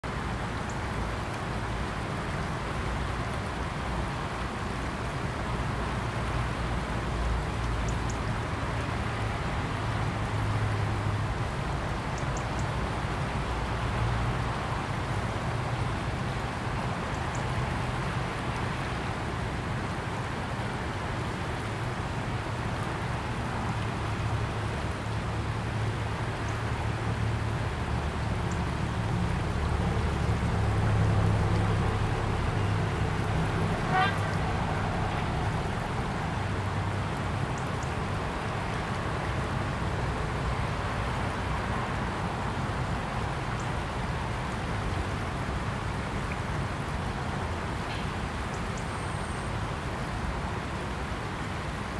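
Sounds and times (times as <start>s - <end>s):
river water rushing: 0.0s - 51.9s.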